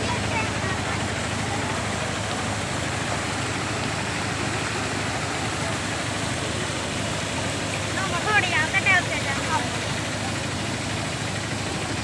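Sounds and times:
floodwater rushing: 0.0s - 12.0s
vehicle engine idling: 0.0s - 12.0s.

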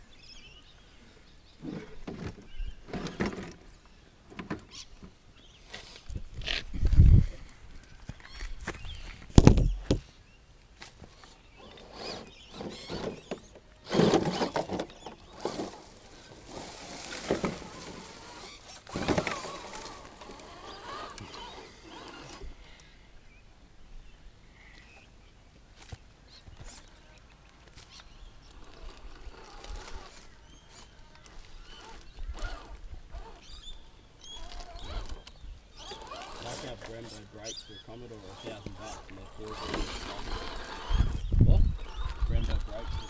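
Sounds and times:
rc car scraping over rocks: 1.5s - 4.9s, 11.0s - 22.6s, 26.5s - 43.0s.

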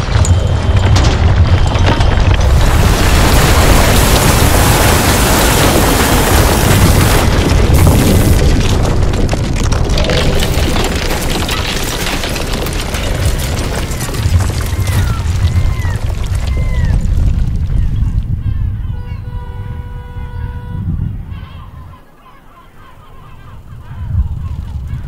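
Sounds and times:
masonry crashing and crumbling: 0.0s - 18.4s
deep continuous rumble: 0.0s - 22.1s, 23.2s - 25.0s
bird cries: 17.8s - 25.0s.

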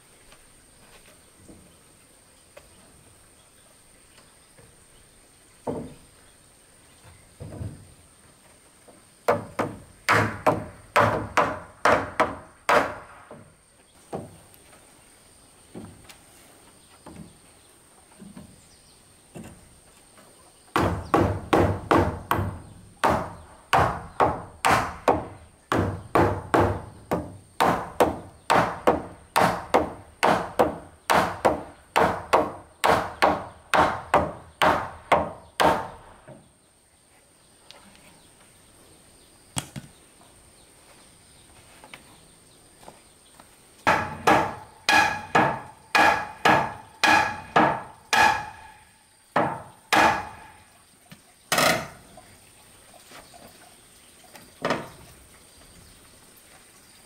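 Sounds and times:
hammer knocking on wooden post: 5.6s - 6.0s, 9.3s - 13.5s, 20.7s - 36.0s, 43.8s - 48.7s, 49.4s - 50.5s.

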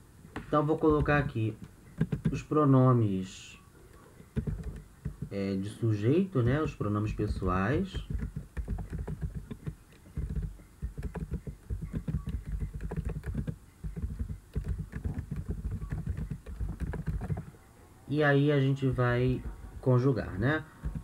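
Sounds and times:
typing on keyboard: 0.9s - 2.4s, 3.9s - 5.4s, 7.2s - 17.6s, 20.8s - 21.0s.

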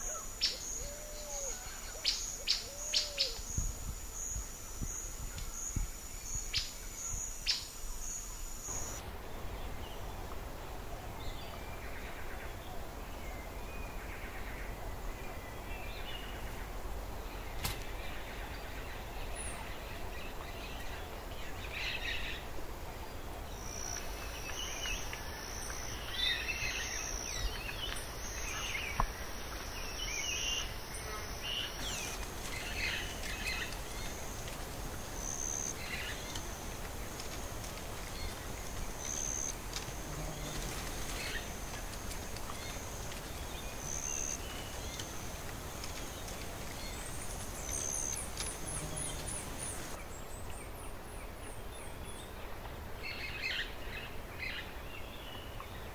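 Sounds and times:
high insect drone: 0.0s - 9.0s, 23.5s - 50.0s.

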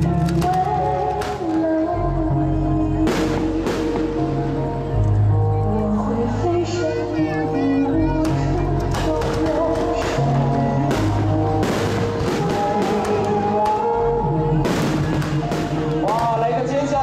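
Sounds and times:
music with long held notes: 0.0s - 17.0s
fireworks bangs and crackles: 8.9s - 13.9s, 14.6s - 17.0s.

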